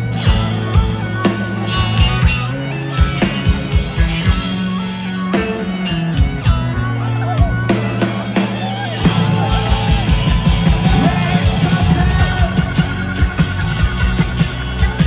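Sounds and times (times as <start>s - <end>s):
bass guitar notes: 0.0s - 15.0s
guitar: 0.0s - 15.0s
drum beat: 5.4s - 15.0s.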